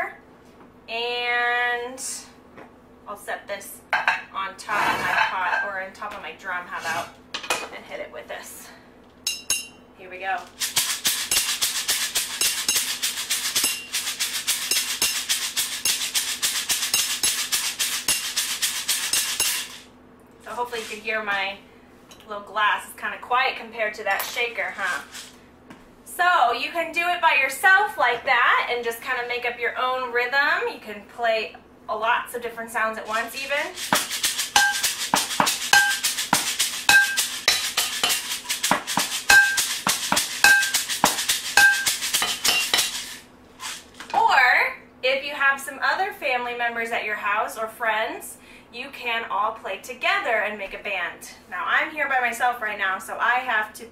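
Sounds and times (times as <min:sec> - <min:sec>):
kitchen shaker shaken: 0:10.4 - 0:19.9, 0:24.3 - 0:25.3, 0:33.0 - 0:44.2
stick beating canister drum: 0:10.6 - 0:19.8, 0:33.7 - 0:43.2
stick beating cooking pot: 0:10.6 - 0:19.8, 0:33.6 - 0:43.2.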